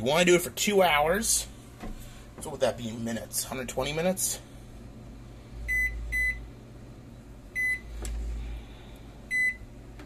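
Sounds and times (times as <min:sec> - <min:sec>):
microwave keypad beeps: 0:05.7 - 0:06.4, 0:07.6 - 0:07.9, 0:09.3 - 0:09.6.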